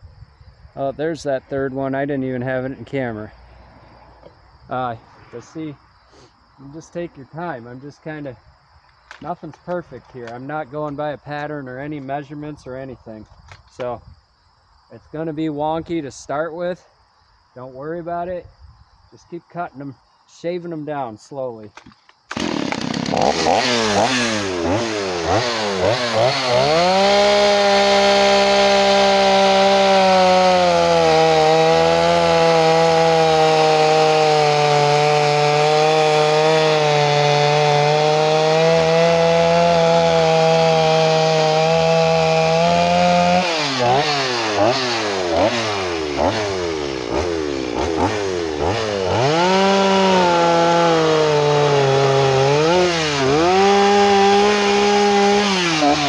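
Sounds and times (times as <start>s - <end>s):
chainsaw cutting log: 21.8s - 56.0s
chainsaw revving: 22.3s - 56.0s.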